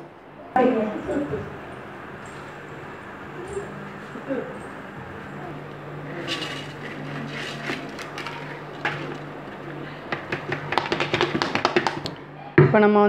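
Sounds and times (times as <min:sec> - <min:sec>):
bowl knocking on pot: 0:10.1 - 0:12.2.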